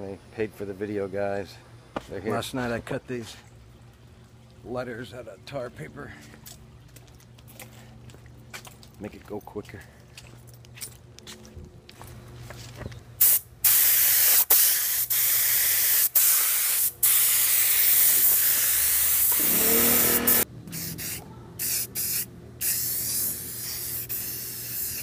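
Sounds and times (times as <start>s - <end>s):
spray gun hissing: 13.2s - 25.0s.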